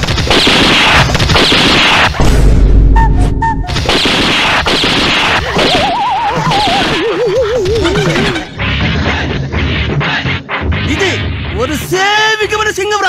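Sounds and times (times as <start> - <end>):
loud hits and crashes: 0.0 - 6.0
heavy low boom: 2.2 - 3.5
warbling tones: 3.0 - 9.2.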